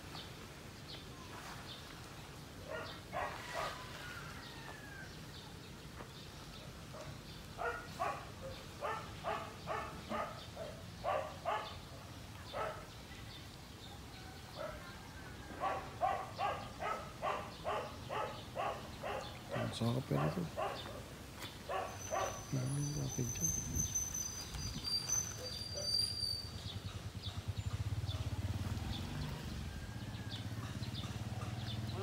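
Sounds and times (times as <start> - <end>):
dog barking: 2.7 - 3.8, 6.9 - 12.9, 14.5 - 22.7, 25.4 - 26.0.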